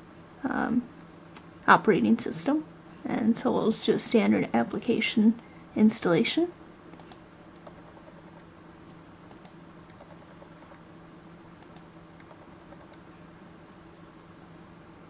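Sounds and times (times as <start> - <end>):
steady low hum: 0.0 - 15.0
computer mouse clicks: 6.9 - 8.5, 9.3 - 10.8, 11.6 - 13.0.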